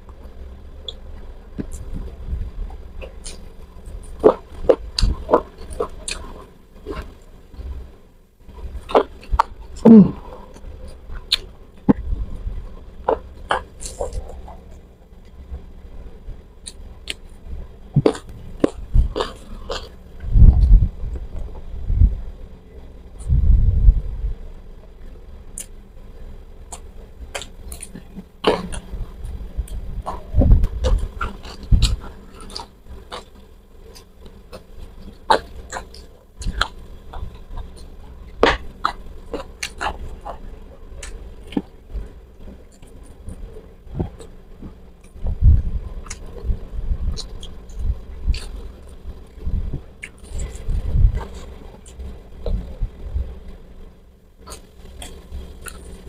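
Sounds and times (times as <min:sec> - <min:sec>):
chewing crunches and smacks: 0:00.0 - 0:07.9, 0:08.5 - 0:15.6, 0:16.6 - 0:21.7, 0:25.5 - 0:25.9, 0:26.6 - 0:56.0
low throat sound: 0:08.9 - 0:10.9.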